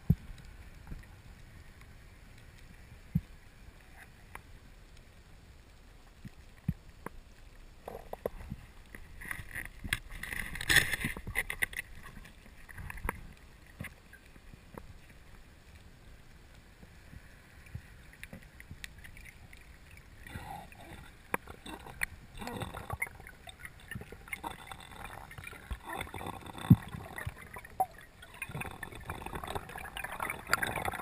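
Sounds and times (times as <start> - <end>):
underwater clicks and knocks: 7.8 - 14.0, 20.9 - 31.0.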